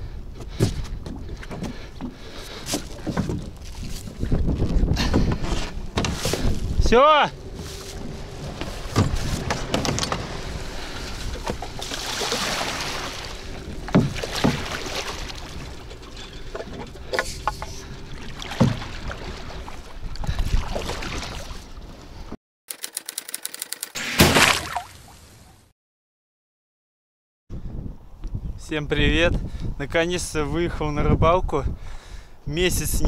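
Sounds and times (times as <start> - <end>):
knocks and bumps in boat: 0.4 - 22.0
quick clicks: 22.7 - 24.0.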